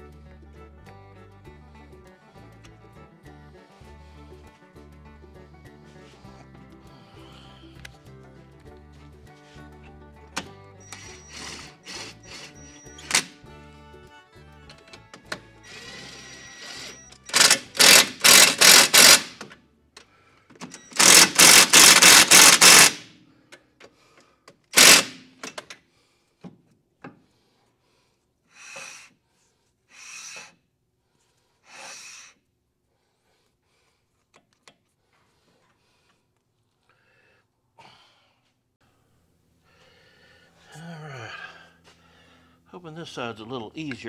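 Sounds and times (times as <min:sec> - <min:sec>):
impact tool bursts: 0:10.9 - 0:13.4, 0:15.2 - 0:19.6, 0:20.6 - 0:23.2, 0:24.7 - 0:25.7.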